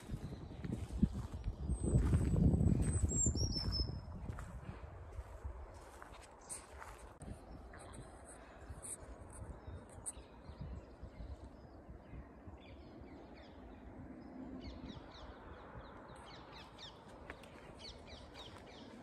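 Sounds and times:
birds chirping: 0.0 - 4.4, 5.2 - 19.0.

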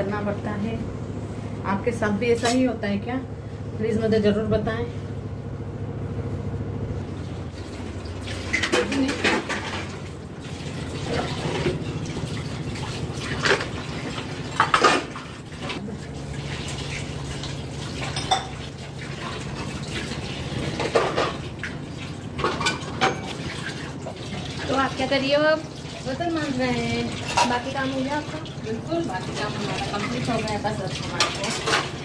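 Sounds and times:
tap water running into sink: 7.5 - 32.0
metal dishes clinking: 18.0 - 18.7.

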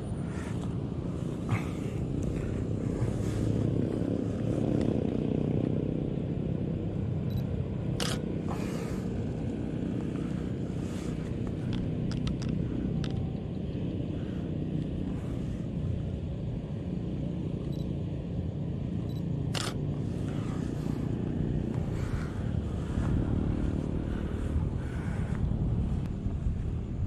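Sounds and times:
low outdoor rumble: 0.0 - 27.0
camera shutter clicks: 8.0 - 8.2, 19.5 - 19.8.

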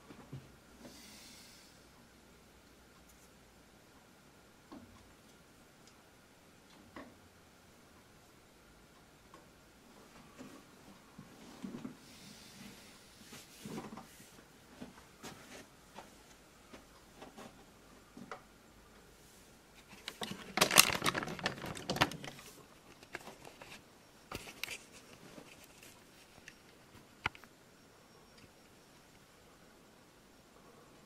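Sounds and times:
rustling and clattering: 19.8 - 27.5.

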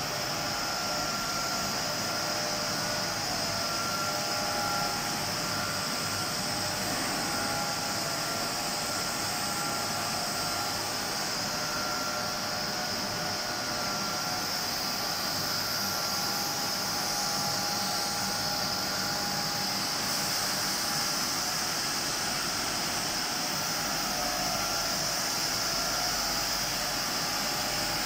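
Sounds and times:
machine whir and hiss: 0.0 - 28.0.

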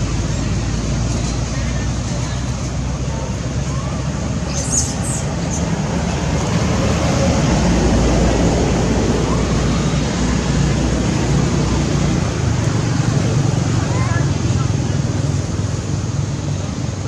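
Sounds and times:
outdoor background noise: 0.0 - 17.0.

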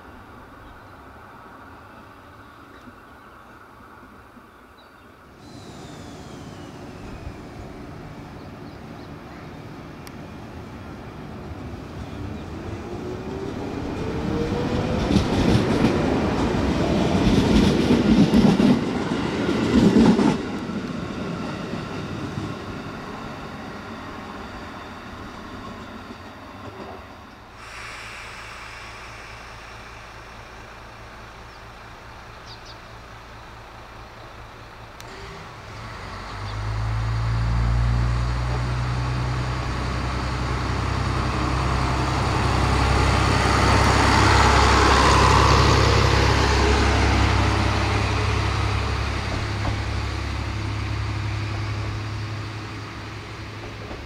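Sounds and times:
wheel and rail noise: 5.2 - 54.0
diesel engine droning: 5.4 - 10.1, 27.6 - 53.9.

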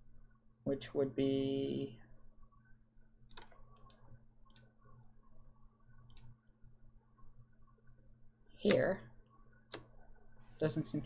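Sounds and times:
faint low hum: 0.0 - 11.0
computer mouse clicks: 3.3 - 5.0, 5.9 - 6.4, 8.6 - 10.1.

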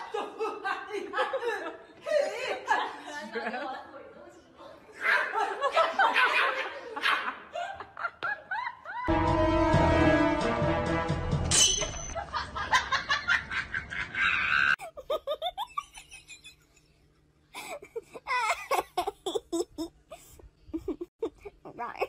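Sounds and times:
people laughing: 0.0 - 4.1, 5.0 - 9.1, 12.2 - 16.8
people talking: 2.4 - 5.2, 21.6 - 22.0
music: 9.1 - 11.6.

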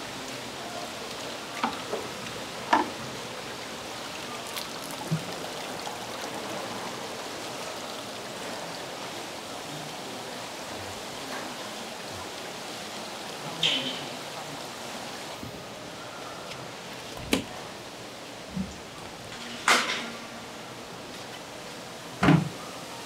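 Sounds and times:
bubbling water in tanks: 0.0 - 19.3.

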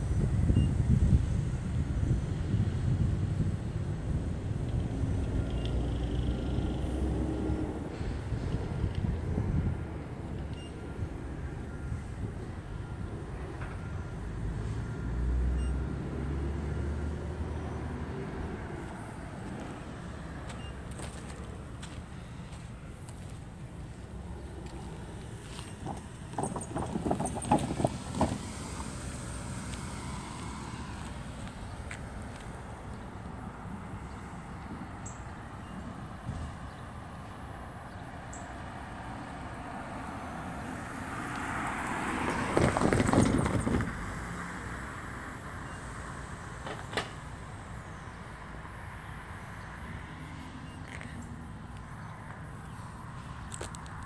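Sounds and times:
passing motor vehicle rumble: 0.0 - 54.0
rattling knocks: 25.8 - 28.4.

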